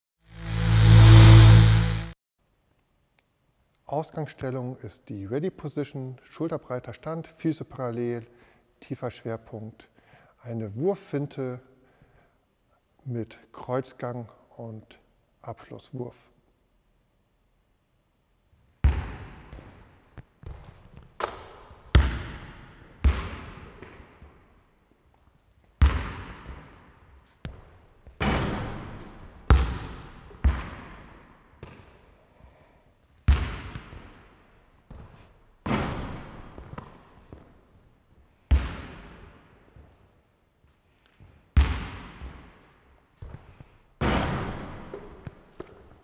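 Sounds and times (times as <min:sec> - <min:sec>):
basketball bouncing on hard floor: 0:18.8 - 0:24.5, 0:25.8 - 0:32.0, 0:33.3 - 0:34.3, 0:34.9 - 0:37.5, 0:41.6 - 0:42.6, 0:44.0 - 0:46.0.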